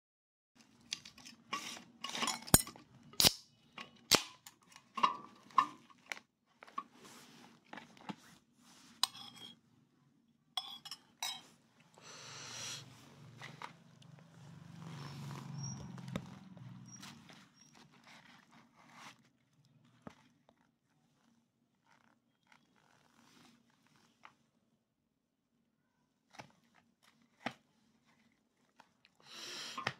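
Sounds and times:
soft handling noise: 0.6s - 9.9s, 12.8s - 24.8s, 26.2s - 29.2s
dishes clinking: 10.6s - 11.5s.

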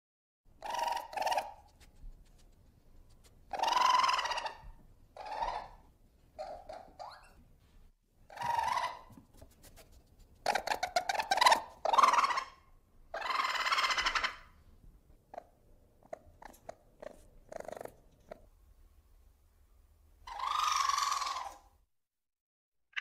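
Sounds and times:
ferret harsh calls: 0.6s - 1.6s, 3.5s - 4.6s, 8.3s - 9.1s, 10.5s - 14.5s, 20.3s - 21.7s
ferret dooking: 0.6s - 2.5s, 3.1s - 5.8s, 8.3s - 9.2s, 10.3s - 14.5s, 15.3s - 18.5s, 20.3s - 21.7s.

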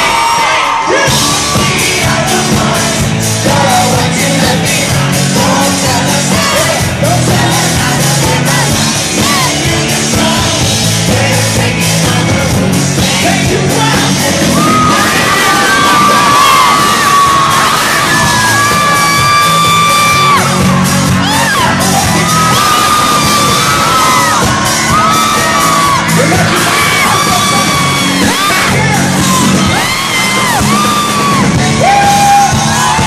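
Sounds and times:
bass: 0.0s - 33.0s
live pop band playing: 0.0s - 33.0s
sung and shouted vocals: 0.0s - 33.0s
drum beat: 1.1s - 33.0s.

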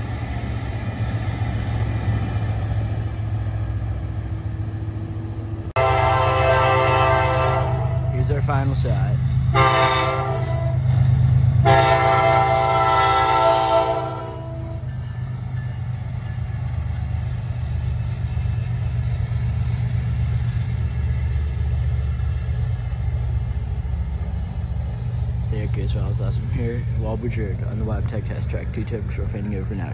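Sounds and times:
locomotives rumbling past: 0.0s - 29.9s
locomotive air horn blasts: 5.8s - 8.2s, 9.5s - 10.8s, 11.6s - 14.8s.

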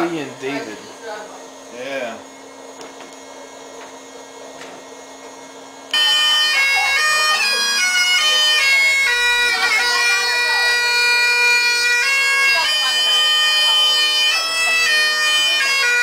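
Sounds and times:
bagpipe music: 0.0s - 0.9s, 5.9s - 16.0s.

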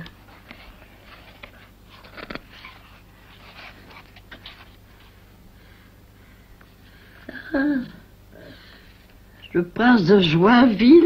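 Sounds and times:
book pages rustling: 0.3s - 5.2s.

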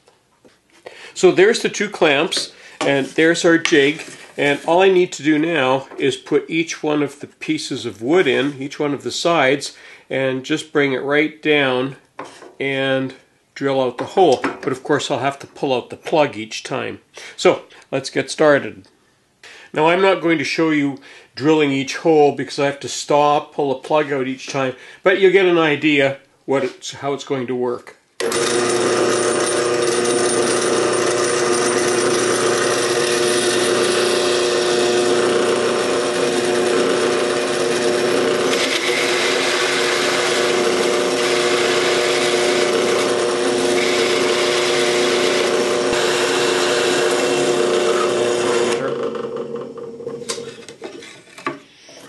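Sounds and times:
drill press motor hum: 28.2s - 50.4s
drill press running down: 28.2s - 50.4s
hole saw cutting wood: 28.2s - 50.4s.

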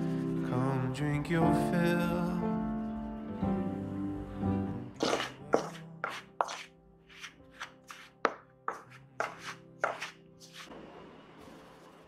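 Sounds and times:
spoon scraping and knocking bowl: 5.0s - 10.7s.

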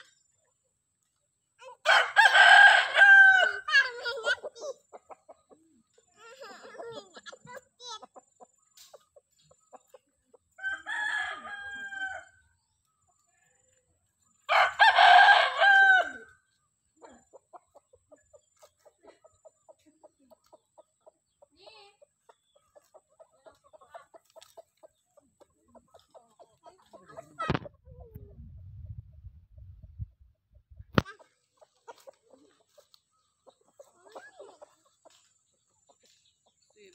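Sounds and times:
rooster crowing: 1.8s - 3.7s, 10.6s - 12.4s, 14.5s - 16.4s.

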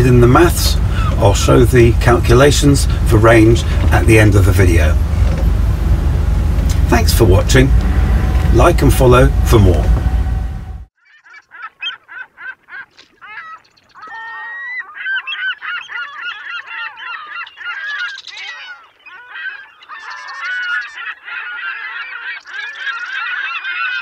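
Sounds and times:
flock of birds calling: 11.0s - 24.0s.

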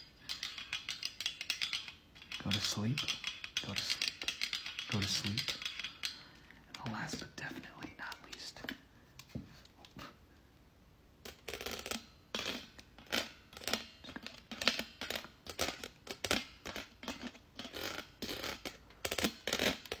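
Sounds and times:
wire mesh being scratched: 0.0s - 6.2s, 11.3s - 20.0s.

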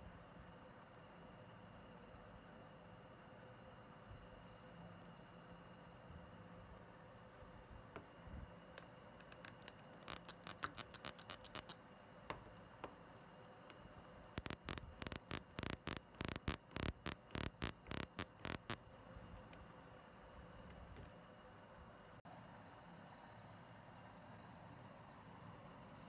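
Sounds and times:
spark lighter clicking: 14.4s - 18.8s.

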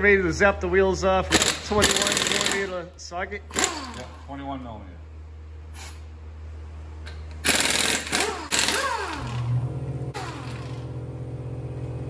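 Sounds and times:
pneumatic impact wrench hammering: 1.3s - 2.7s, 3.5s - 4.2s, 7.1s - 10.8s.

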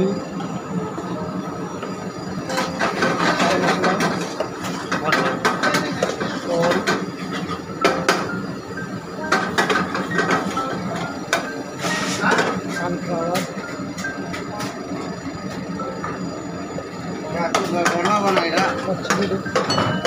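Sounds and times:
steady low hum: 0.0s - 20.0s
kitchen utensils and dishes clattering: 2.5s - 8.3s, 9.3s - 12.7s, 17.6s - 20.0s.

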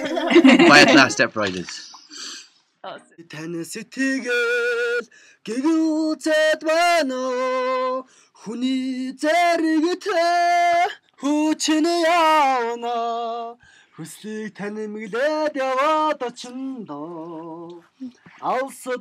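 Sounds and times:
man singing unaccompanied: 0.4s - 1.2s, 3.2s - 19.0s
breaths: 1.6s - 2.6s, 5.1s - 5.4s, 8.1s - 8.4s, 13.6s - 14.0s.

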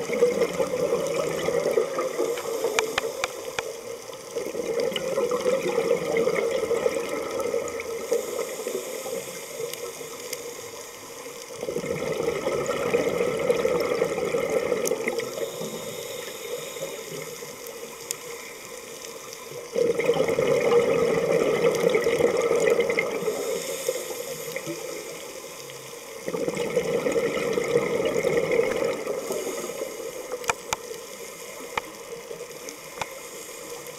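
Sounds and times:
exhaled bubbles rushing: 0.0s - 3.3s, 4.3s - 8.2s, 11.6s - 15.4s, 19.7s - 23.6s, 26.2s - 30.7s
regulator inhale hiss: 2.2s - 3.8s, 7.9s - 11.5s, 15.1s - 19.5s, 23.1s - 26.2s, 29.1s - 33.9s.

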